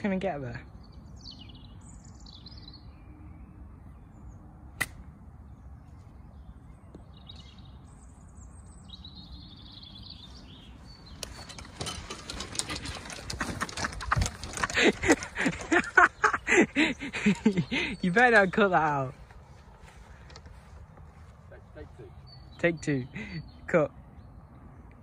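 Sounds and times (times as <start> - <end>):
birds chirping: 0.0 - 25.0
rustling on microphone: 10.1 - 22.1
person speaking: 16.5 - 19.3.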